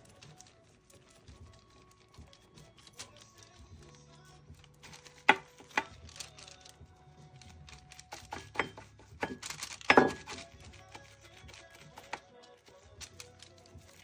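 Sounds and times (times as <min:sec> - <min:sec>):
faint background music: 0:00.0 - 0:14.0.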